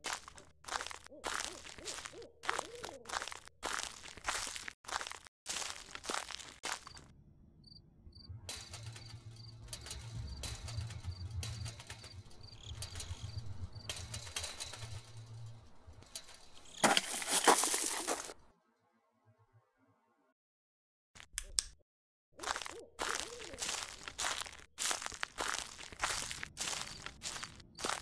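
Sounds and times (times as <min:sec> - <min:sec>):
low hum with crackling: 0:06.4 - 0:18.4.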